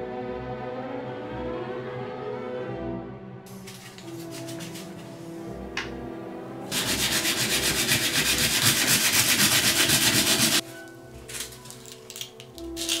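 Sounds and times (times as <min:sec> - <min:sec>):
knife blade rubbed on sandpaper: 0:03.5 - 0:05.4, 0:06.7 - 0:10.8.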